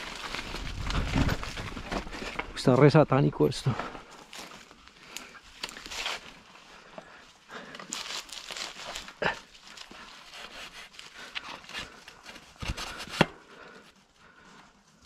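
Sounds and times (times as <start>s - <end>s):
bike rattling: 0.0s - 2.9s
bike tyres crunching on stones: 0.0s - 10.1s.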